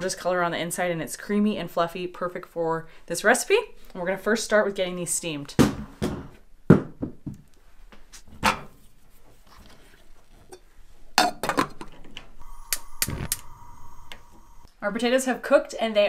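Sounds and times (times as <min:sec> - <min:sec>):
faint steady tone: 0:12.4 - 0:14.7.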